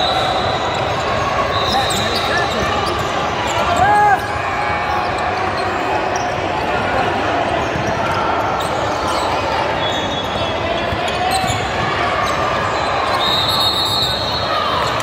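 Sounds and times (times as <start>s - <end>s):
crowd noise and voices: 0.0s - 15.0s.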